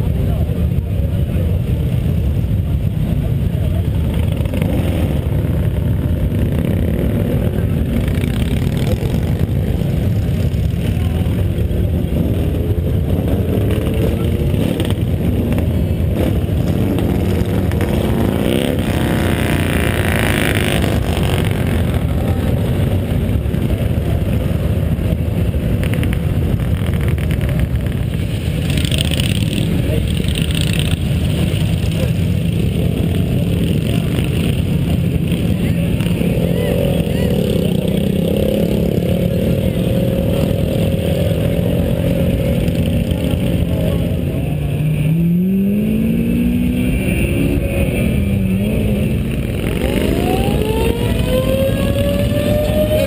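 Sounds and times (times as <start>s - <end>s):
motorcycle engines rumbling: 0.0s - 53.0s
motorcycle passing by: 12.2s - 24.4s, 25.9s - 53.0s.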